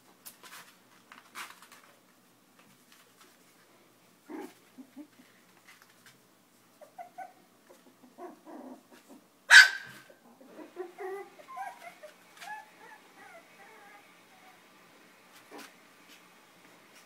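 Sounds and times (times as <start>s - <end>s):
puppies grunting and growling: 4.2s - 5.3s, 6.8s - 9.3s, 10.1s - 14.7s
puppies yipping and whimpering: 6.8s - 14.6s
puppy high bark: 9.5s - 10.1s.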